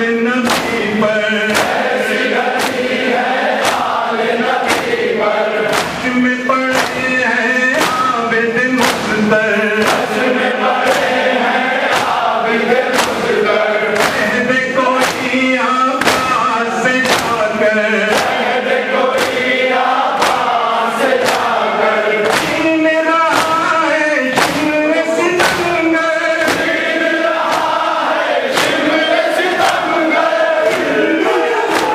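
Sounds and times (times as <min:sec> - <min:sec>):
crowd of men chanting: 0:00.0 - 0:31.9
man reciting into a microphone: 0:00.0 - 0:31.9
hands striking chests: 0:00.4 - 0:05.1, 0:05.7 - 0:08.2, 0:08.8 - 0:10.2, 0:11.9 - 0:12.3, 0:12.9 - 0:14.4, 0:15.0 - 0:17.5, 0:19.1 - 0:20.5, 0:21.2 - 0:21.6, 0:22.2 - 0:27.8.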